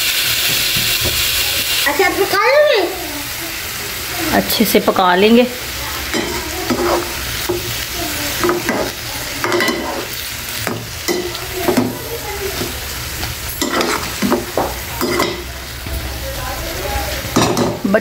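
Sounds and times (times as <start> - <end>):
pan sizzling: 0.0 - 18.0
ladle scraping and clinking pan: 6.1 - 7.7, 8.4 - 11.9, 13.6 - 15.5.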